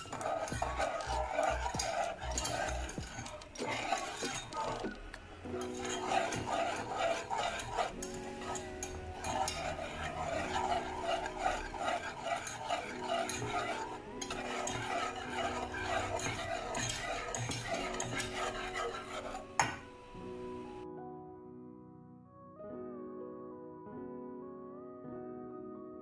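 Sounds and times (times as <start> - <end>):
metal whisk scraping saucepan: 0.0 - 19.9.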